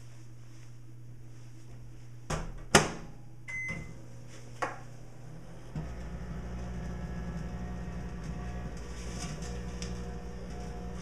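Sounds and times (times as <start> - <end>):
microwave oven humming: 0.3 - 11.0
keypad beep: 3.5 - 3.9.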